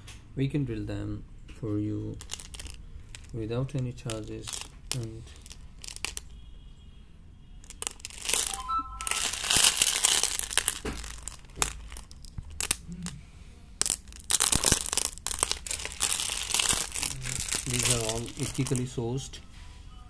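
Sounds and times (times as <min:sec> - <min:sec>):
polished stones clicking together: 0:02.2 - 0:03.4, 0:04.0 - 0:06.4, 0:07.6 - 0:08.6, 0:09.4 - 0:13.2, 0:13.8 - 0:19.0.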